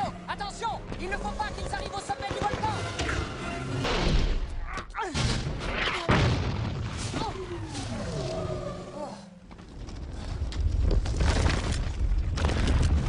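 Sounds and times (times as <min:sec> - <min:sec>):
explosion booms: 0:06.1 - 0:07.0.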